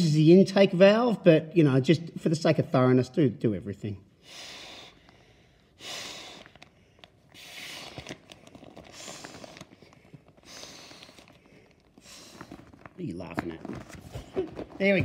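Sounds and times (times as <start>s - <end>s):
air puffs blown by mouth: 7.4s - 8.2s.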